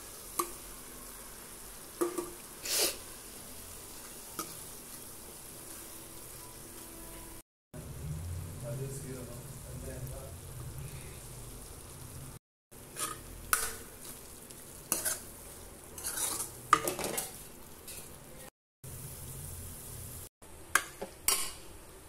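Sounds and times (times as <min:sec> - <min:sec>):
food sizzling: 0:00.0 - 0:22.0
metal ladle scraping pan: 0:12.9 - 0:14.2, 0:14.9 - 0:15.3, 0:15.9 - 0:18.2.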